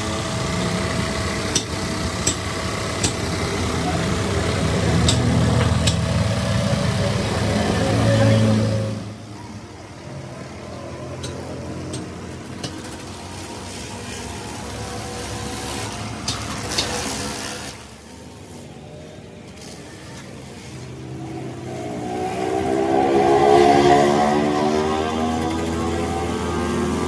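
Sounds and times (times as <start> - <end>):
engine running: 0.0 - 27.0
engine revving higher: 2.8 - 9.3, 20.9 - 27.0.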